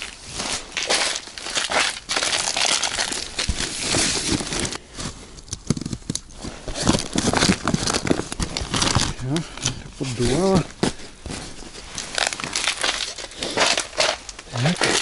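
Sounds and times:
tent fabric rustling: 0.0s - 15.0s.

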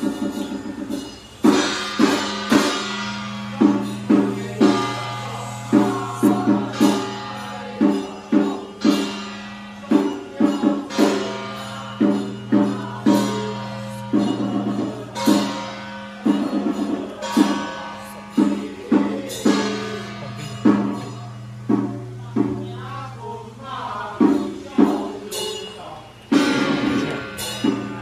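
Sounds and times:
ringing percussion strikes: 0.0s - 28.0s
steady low drone: 1.7s - 9.8s.

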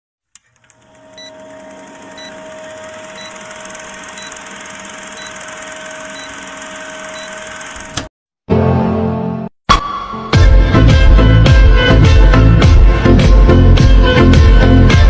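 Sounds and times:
film projector rattle: 0.5s - 8.1s.

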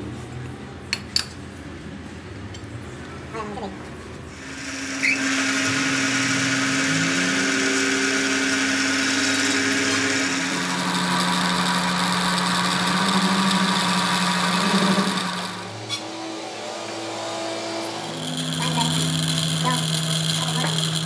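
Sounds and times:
cutting tool hissing on steel: 4.4s - 10.4s
metal lathe humming: 4.4s - 21.0s.

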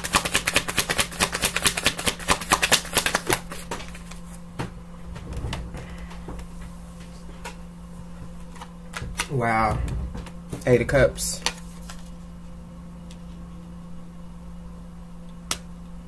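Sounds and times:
cards shuffling: 0.0s - 4.4s, 10.2s - 12.3s.

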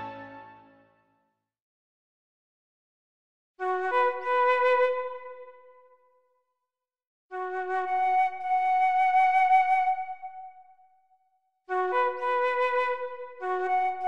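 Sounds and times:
music with sustained notes: 0.0s - 1.1s.

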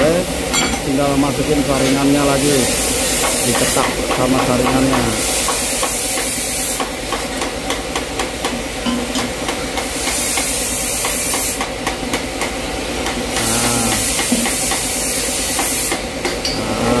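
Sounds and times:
steady hiss: 0.1s - 7.2s, 13.3s - 17.0s
hammer tapping on metal: 3.2s - 14.9s.

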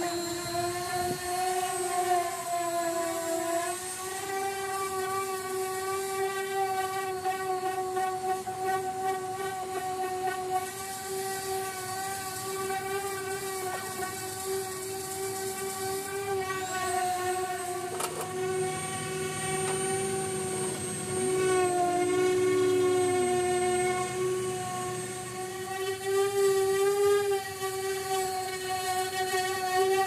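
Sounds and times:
thin high whistle: 0.0s - 1.8s
air sander humming whine: 0.0s - 30.0s.

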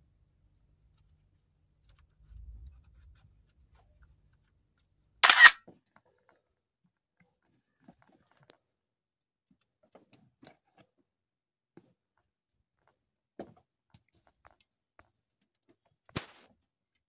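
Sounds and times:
faint small clicks: 5.2s - 5.6s.

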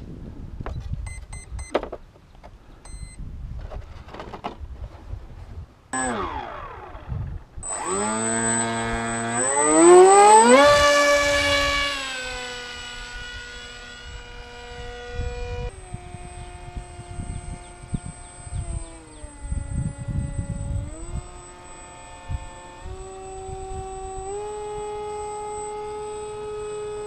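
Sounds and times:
model plane motor whining: 6.0s - 27.0s.

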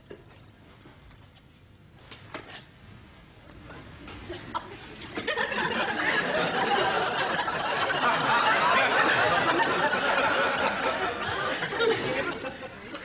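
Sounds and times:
studio audience laughing: 4.2s - 13.0s.

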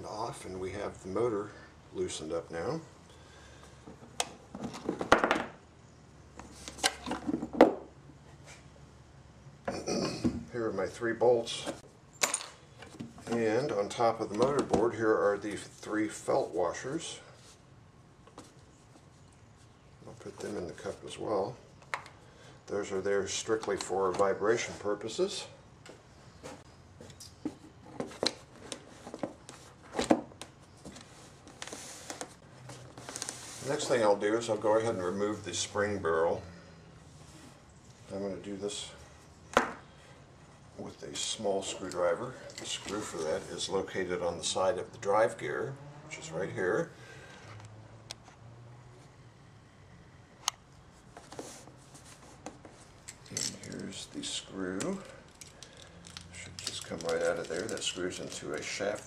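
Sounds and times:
knocks and clatter of wood and metal: 4.5s - 5.6s.

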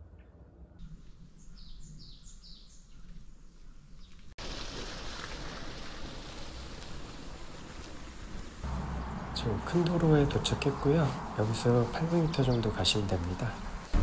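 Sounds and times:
bird chirping: 0.1s - 4.2s
steady rushing noise: 6.9s - 14.0s.

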